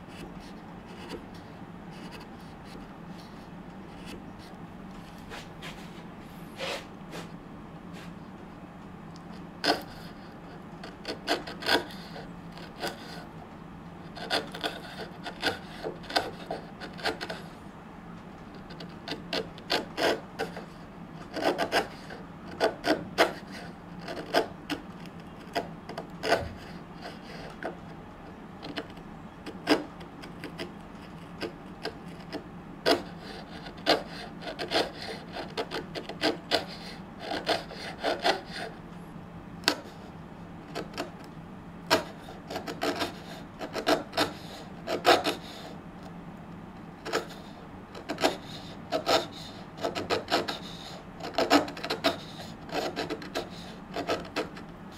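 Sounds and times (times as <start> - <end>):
chisel paring wood: 10.8 - 13.2, 14.2 - 17.4, 18.7 - 27.8, 28.6 - 38.7, 41.9 - 45.4, 48.0 - 54.4.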